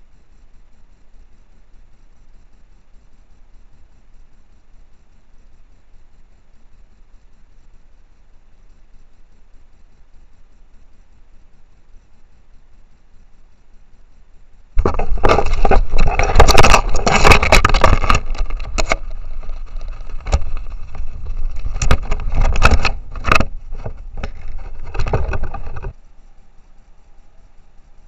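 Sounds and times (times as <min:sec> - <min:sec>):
scraping and brushing against camera: 0:14.8 - 0:26.0.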